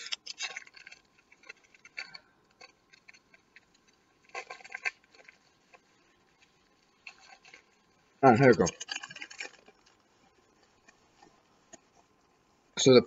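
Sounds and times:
plastic bag rustling and crinkling: 0:00.0 - 0:12.1.

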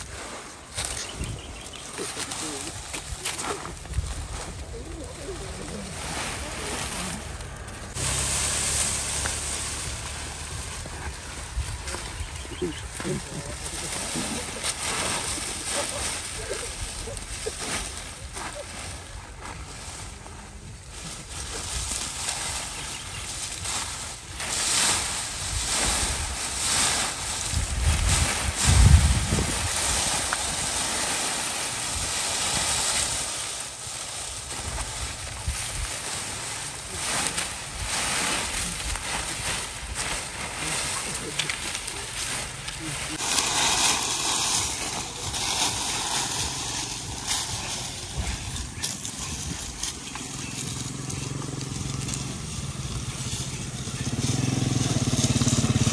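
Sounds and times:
dry corn stalks rustling: 0:00.0 - 0:55.9
low rumble: 0:03.6 - 0:15.7
wind rumble on microphone: 0:09.0 - 0:13.3, 0:25.0 - 0:33.2.

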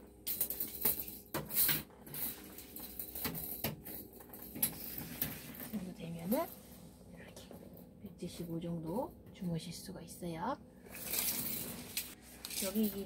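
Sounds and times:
rustling handling noise: 0:00.3 - 0:08.0, 0:10.8 - 0:13.0.

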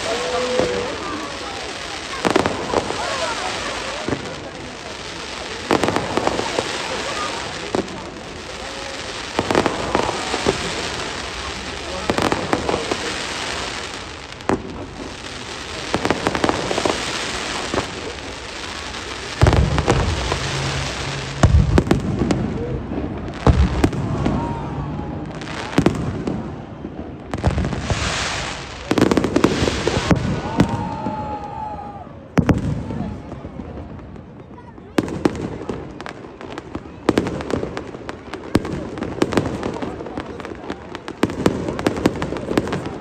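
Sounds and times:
firework crackling: 0:00.0 - 0:43.0
firework shells booming: 0:12.0 - 0:24.6, 0:25.2 - 0:31.2.

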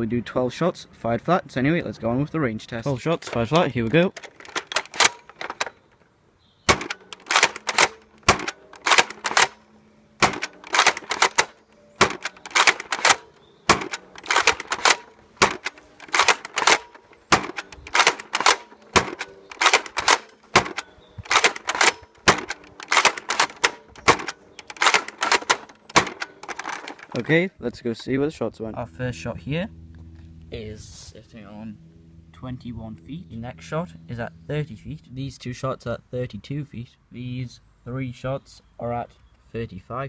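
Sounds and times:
plastic bolt clacks: 0:02.9 - 0:06.1, 0:06.7 - 0:09.6, 0:10.2 - 0:27.3
toy blaster shot: 0:06.7 - 0:09.6, 0:10.2 - 0:27.0.

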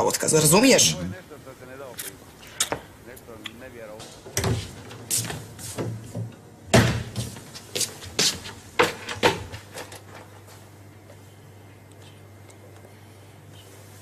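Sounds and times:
sharp knocks and bangs: 0:05.8 - 0:07.4.

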